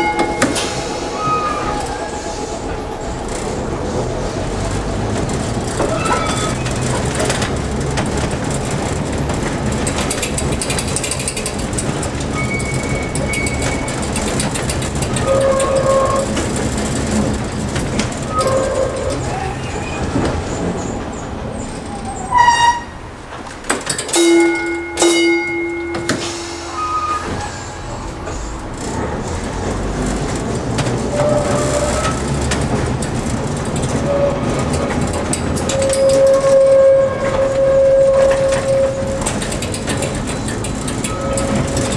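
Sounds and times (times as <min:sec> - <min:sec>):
streetcar wheels rumbling on rails: 0:00.0 - 0:41.9
wheels squealing on curves: 0:05.8 - 0:07.4, 0:31.0 - 0:32.4
held squealing tone: 0:12.3 - 0:14.2, 0:24.2 - 0:28.1, 0:35.6 - 0:40.1.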